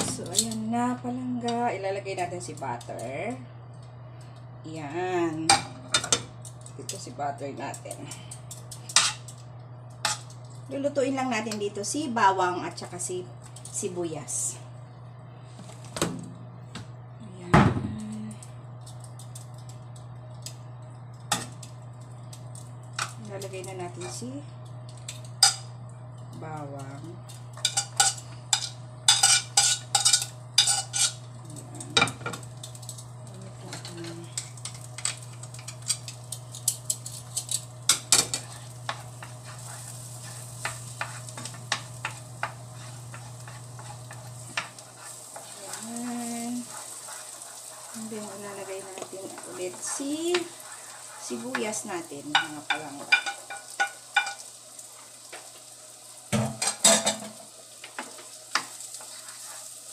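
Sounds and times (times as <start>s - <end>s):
steady low hum: 0.0s - 59.9s
butter melting in pan: 18.0s - 59.9s
utensil clicking in frying pan: 24.0s - 26.4s, 27.3s - 31.2s, 32.0s - 33.1s, 33.7s - 54.6s.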